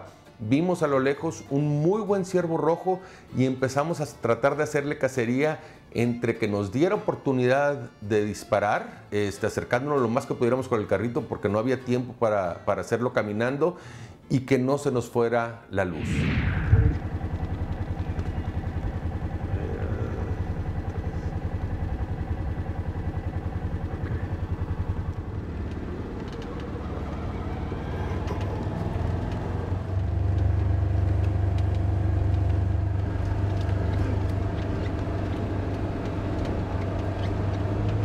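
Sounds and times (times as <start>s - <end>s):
small engine running: 16.2s - 38.0s.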